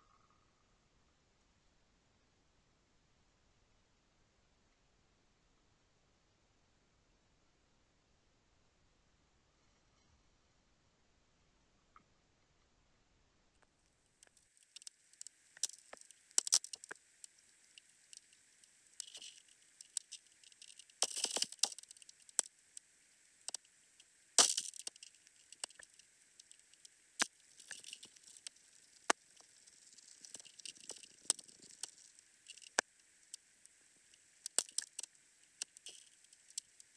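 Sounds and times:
sharp underwater clicks and crackles: 13.6 - 36.9
faint hiss: 13.7 - 36.9.

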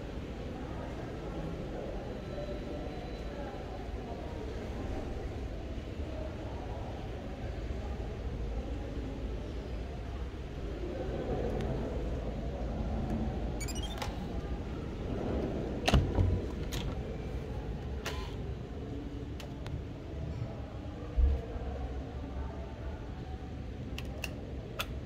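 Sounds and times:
rising electronic beeps: 13.6 - 14.0.

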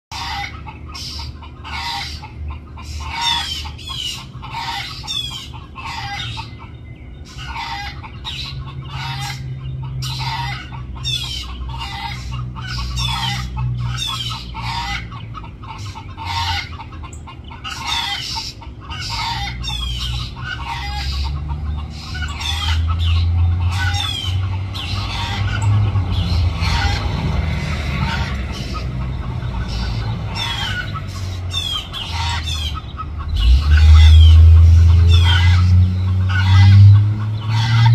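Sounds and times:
chickens clucking: 0.1 - 37.9
thin high falling calls: 22.0 - 37.9.

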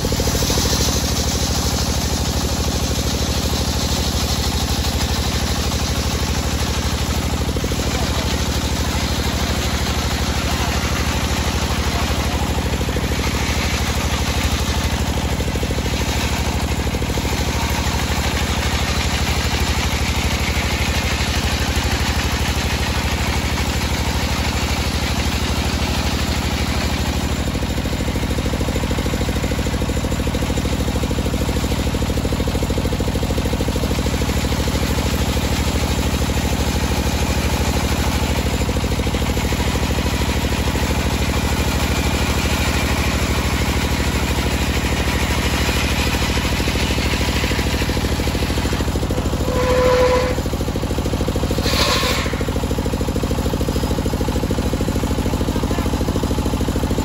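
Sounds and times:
drive engine droning: 0.0 - 21.0, 37.3 - 53.5
circular saw cutting wood: 45.4 - 50.5, 51.4 - 52.5.

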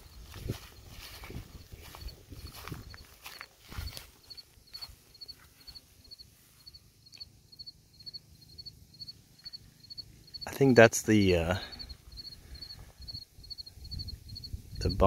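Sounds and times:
footsteps in dry grass: 0.0 - 6.9
cricket chirping: 0.0 - 15.0.

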